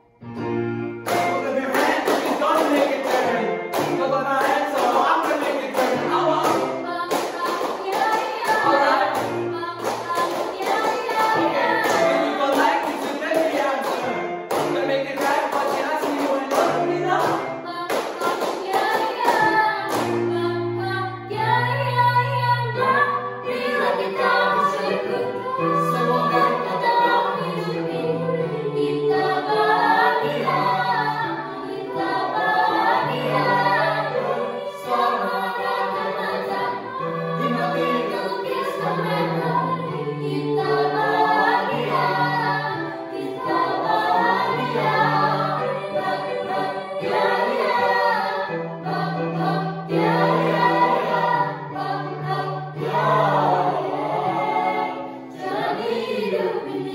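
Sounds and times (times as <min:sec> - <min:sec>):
choir singing in parts: 0:01.0 - 0:56.9.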